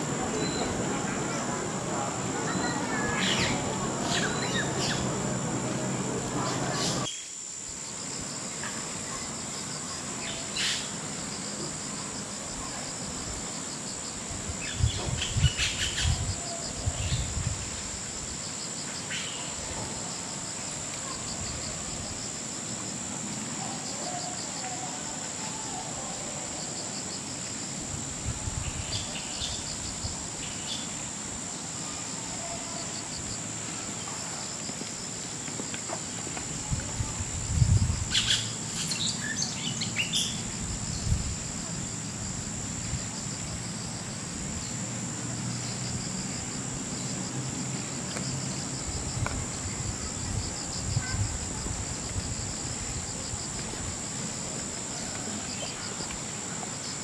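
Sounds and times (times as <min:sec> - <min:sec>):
crickets chirping: 0:00.0 - 0:57.0.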